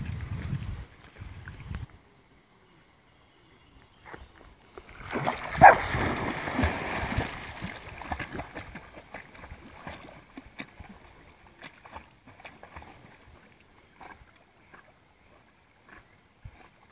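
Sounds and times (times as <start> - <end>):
paddling splashes: 4.8 - 14.8
dog splashing into water: 4.9 - 13.1
dog barking: 5.6 - 5.8.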